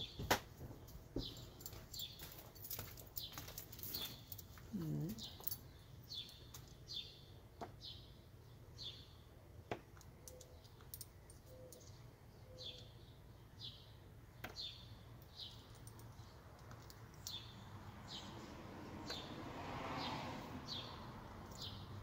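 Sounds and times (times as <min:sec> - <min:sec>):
bird chirping: 0:00.0 - 0:19.4, 0:20.1 - 0:22.0
metal washers clicking on board: 0:15.2 - 0:17.5.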